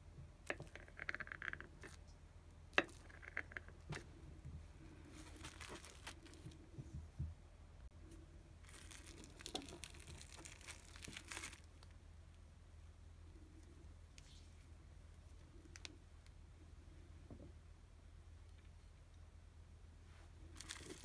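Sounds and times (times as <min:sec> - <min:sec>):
cling film crinkling: 0:05.2 - 0:06.6, 0:08.6 - 0:11.8.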